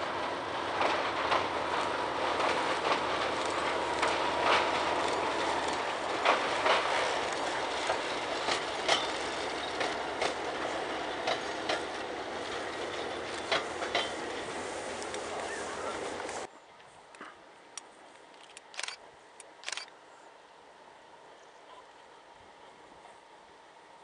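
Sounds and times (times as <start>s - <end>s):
train rolling rumble: 0.0s - 16.5s
train wheels clacking over rail joints: 0.0s - 16.5s.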